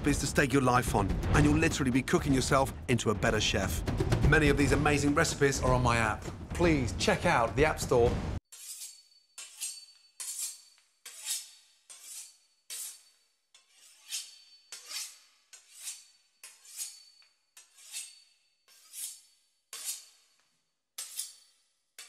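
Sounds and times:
knife sawing through pastry crust: 0:08.5 - 0:20.4.

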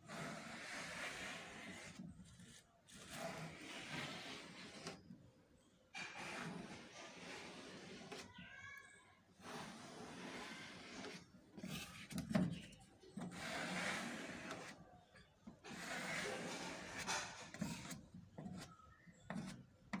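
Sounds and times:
sandpaper rasping on metal panel: 0:00.0 - 0:05.0, 0:06.0 - 0:08.3, 0:09.4 - 0:12.0, 0:13.3 - 0:14.8, 0:15.6 - 0:18.7.

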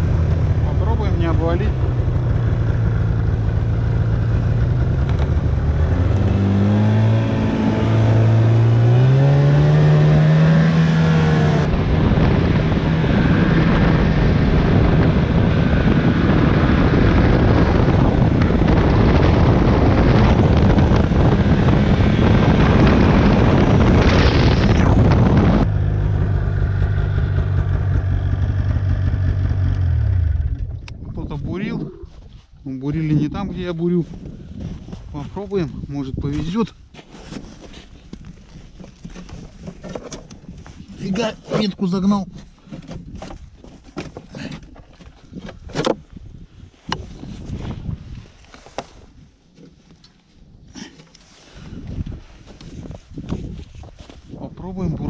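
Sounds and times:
snowmobile engine running: 0:00.0 - 0:32.0.

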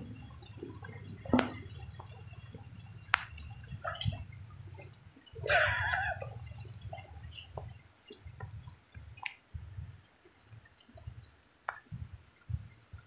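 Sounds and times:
faint steady background noise: 0:00.0 - 0:13.0
water dripping: 0:00.0 - 0:13.0.

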